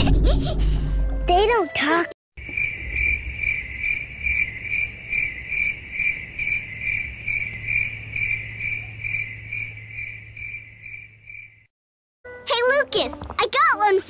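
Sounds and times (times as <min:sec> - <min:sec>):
cricket chirping: 0:02.4 - 0:11.7.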